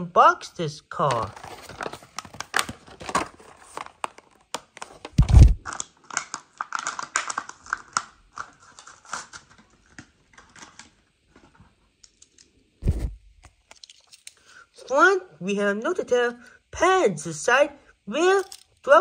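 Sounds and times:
plastic blister pack crackling: 1.2 - 11.0.

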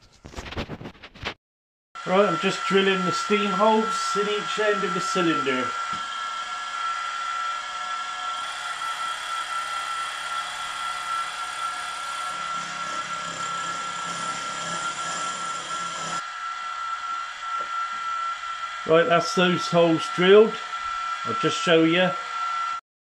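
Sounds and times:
rough cutting noise: 2.0 - 16.4
milling spindle high whine: 2.0 - 22.8.

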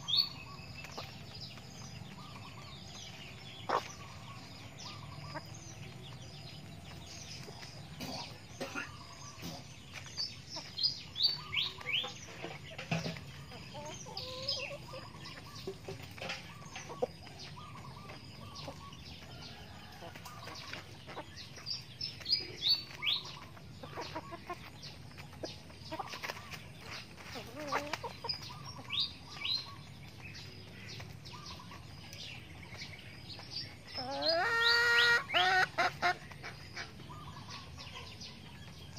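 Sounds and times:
chickens clucking softly: 0.0 - 38.9
drawn-out chicken call: 34.0 - 37.4.

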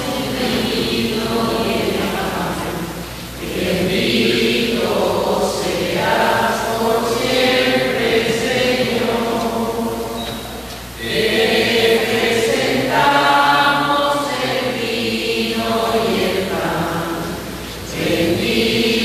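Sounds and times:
group singing a slow hymn: 0.0 - 19.0.

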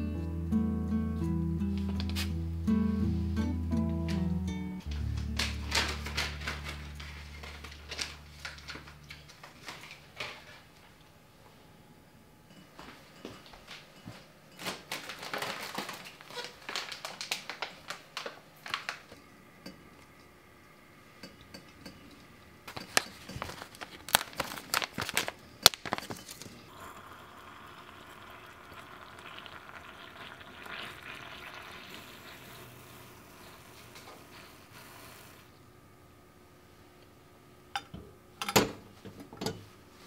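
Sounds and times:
foil pouch rustling and crinkling: 4.9 - 10.6, 14.6 - 19.1, 22.8 - 26.6
water pouring into glass cup: 26.7 - 34.0.

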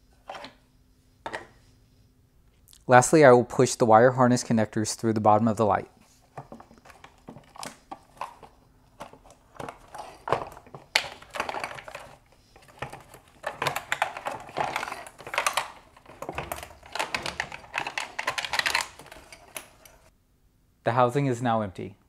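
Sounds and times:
plastic connectors clicking: 9.6 - 20.0.

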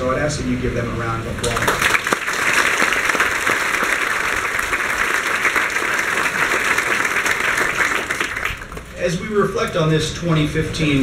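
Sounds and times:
audience applauding: 1.4 - 9.0.

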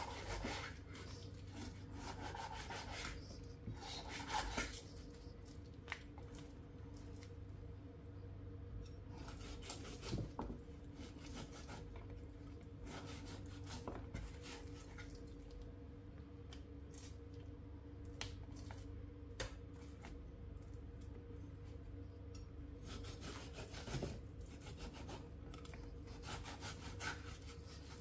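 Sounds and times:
knife sawing through meat: 0.0 - 0.8, 1.5 - 3.2, 3.8 - 4.8, 22.8 - 24.0, 26.1 - 28.0
faint steady hum: 0.0 - 28.0.

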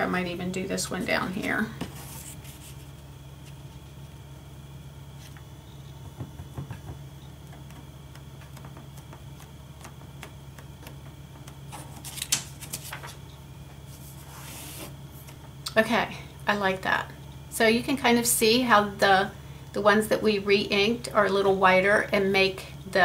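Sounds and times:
template crackling and rustling: 5.1 - 15.6.

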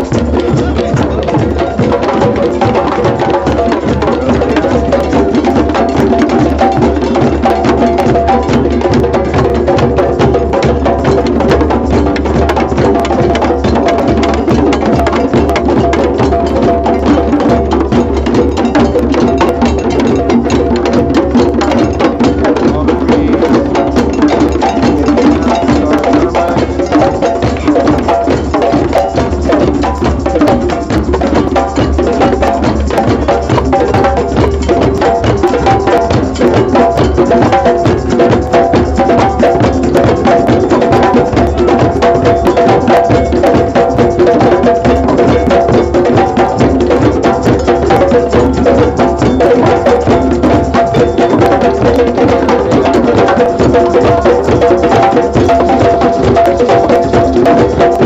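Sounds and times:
hand drums playing rhythm: 0.0 - 58.0.

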